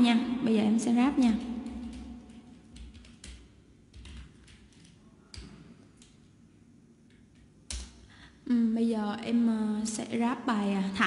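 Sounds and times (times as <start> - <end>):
keyboard and mouse clicking: 1.4 - 6.2.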